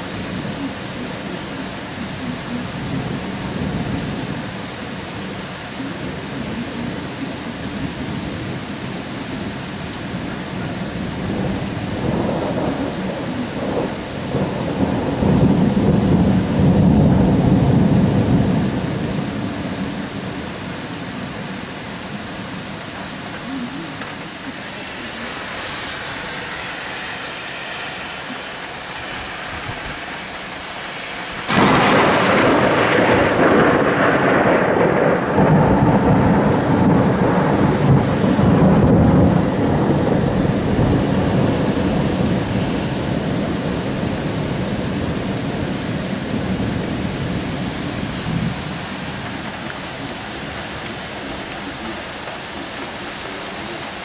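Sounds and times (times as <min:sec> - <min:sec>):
rain splattering on pavement: 0:00.0 - 0:54.0
thunder rumbling: 0:00.0 - 0:54.0
loud thunderclap: 0:11.1 - 0:20.3, 0:29.0 - 0:51.4.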